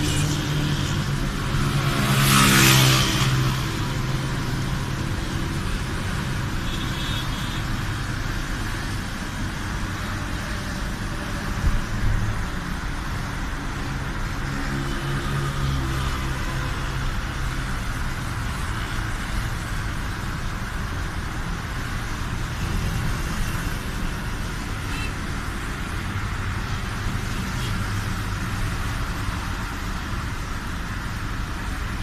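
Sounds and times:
road and wind noise: 0.0s - 32.0s
vehicle engine hum: 0.0s - 32.0s.

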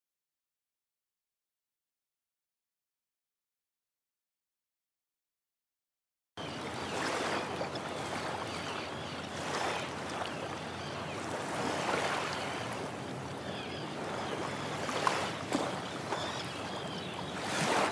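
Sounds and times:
gentle sea waves lapping: 6.4s - 17.9s
small water splashes: 6.6s - 13.1s, 14.1s - 17.9s.

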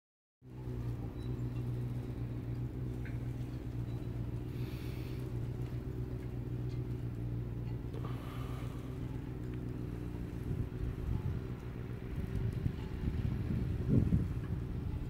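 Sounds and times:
low machine hum: 0.4s - 15.0s
wind buffeting microphone: 8.9s - 15.0s.

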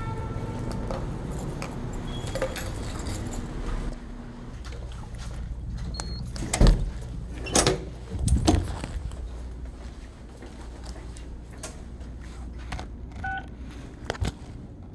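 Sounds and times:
low background hum: 0.0s - 14.9s
footsteps: 4.5s - 7.4s, 8.0s - 14.6s
badge reader beep: 13.2s - 13.5s.

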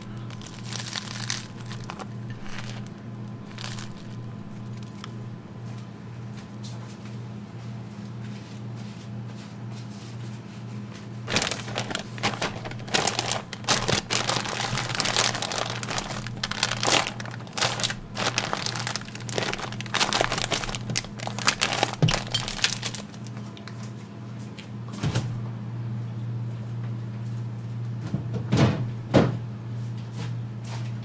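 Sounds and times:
plastic bag crinkling: 0.0s - 5.6s, 11.2s - 23.8s
low hum: 0.0s - 5.7s.

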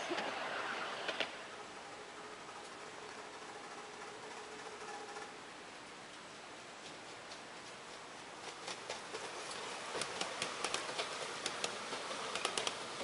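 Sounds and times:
miniature train passing: 0.0s - 5.5s, 6.8s - 13.0s
wheels clicking over rail joints: 6.8s - 13.0s.

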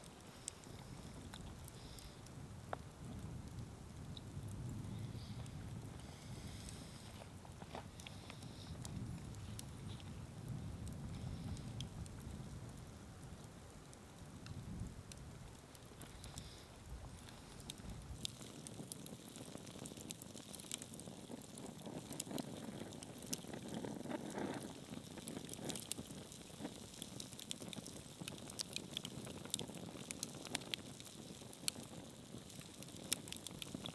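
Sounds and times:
low steady hiss: 0.0s - 33.9s
wood fire crackling: 0.0s - 33.9s.

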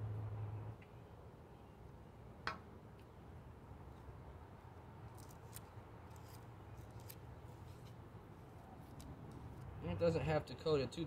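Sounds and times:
wooden stick scraping pine cone: 5.1s - 8.0s.

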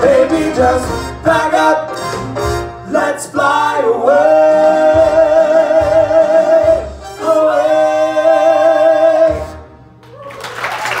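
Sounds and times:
male trio singing in harmony: 0.0s - 2.0s, 2.8s - 9.6s
audience applause: 10.0s - 11.0s.

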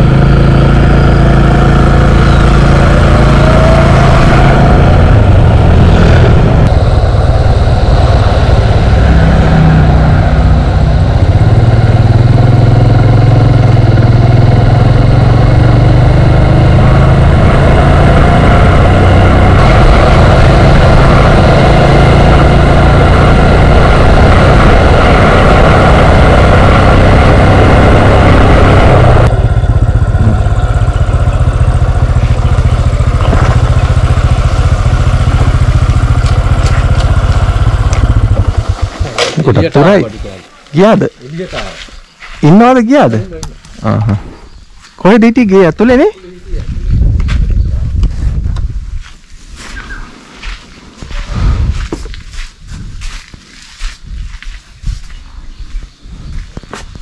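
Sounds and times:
motorcycle engine running: 0.0s - 41.5s
wind rushing over microphone: 2.1s - 41.1s, 46.2s - 57.0s.

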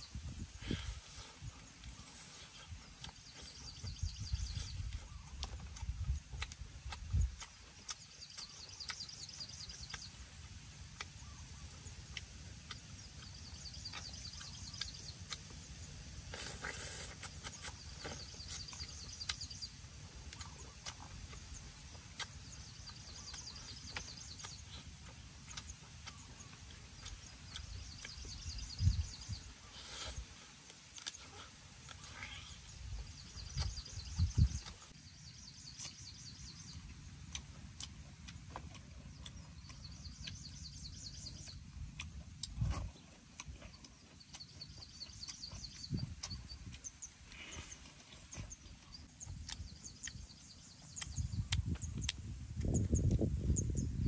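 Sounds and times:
crunching and chewing: 0.1s - 53.6s.

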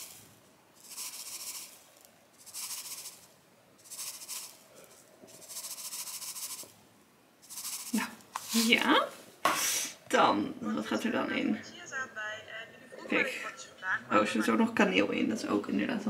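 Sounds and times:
seeds pouring into a bowl: 0.0s - 6.8s, 7.4s - 8.7s.

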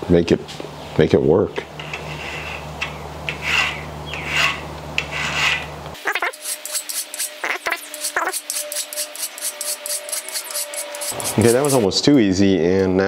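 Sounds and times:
hand file rasping on metal: 3.3s - 11.9s.

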